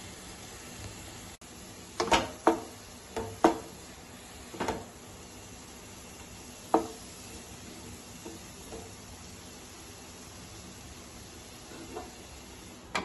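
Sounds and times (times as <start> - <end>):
wooden spatula knocking metal pan: 2.0 - 3.7, 6.7 - 7.0.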